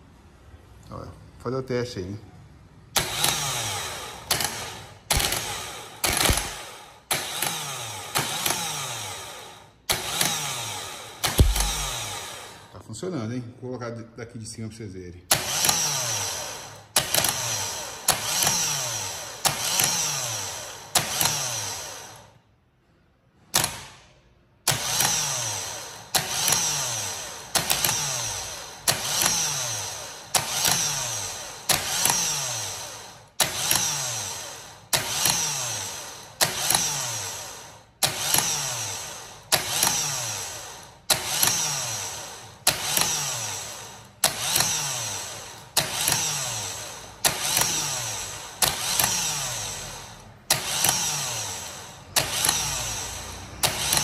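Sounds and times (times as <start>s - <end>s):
starter motor whine: 2.9s - 12.7s, 24.7s - 54.0s
starter motor click: 4.3s - 8.6s, 11.2s - 12.2s, 27.5s - 32.5s, 34.8s - 37.2s, 42.6s - 43.4s, 44.2s - 54.0s.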